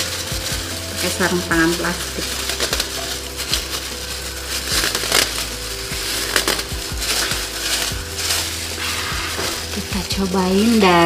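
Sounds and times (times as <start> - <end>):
plastic gloves crinkling: 0.0 - 11.0
sharp plastic crackles: 0.0 - 11.0.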